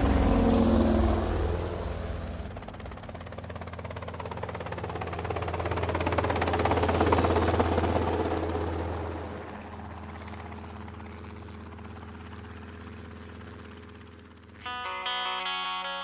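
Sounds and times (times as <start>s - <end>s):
distorted electric guitars droning: 14.6s - 16.0s.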